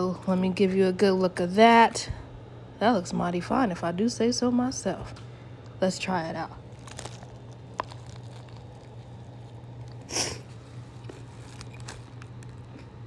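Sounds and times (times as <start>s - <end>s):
person chewing sandwich: 6.6s - 13.0s.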